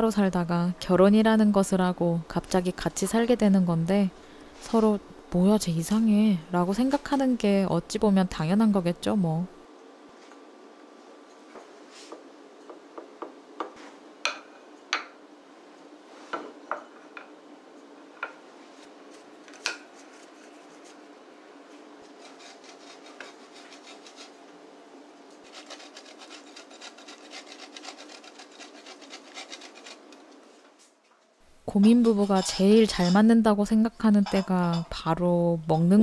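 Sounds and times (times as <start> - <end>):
cheese grated on metal grater: 22.1 - 24.4, 25.4 - 30.2, 31.7 - 33.3.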